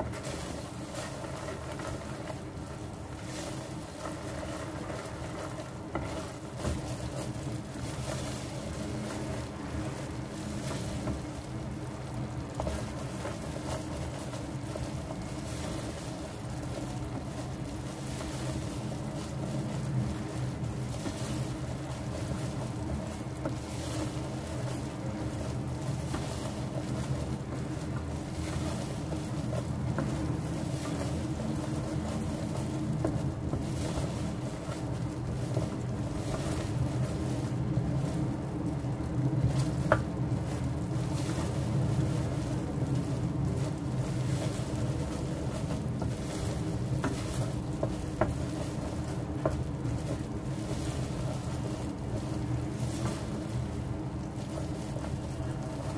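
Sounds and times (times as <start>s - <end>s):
spatula stirring bubbling syrup: 0.0s - 39.4s
steady low hum: 0.0s - 55.9s.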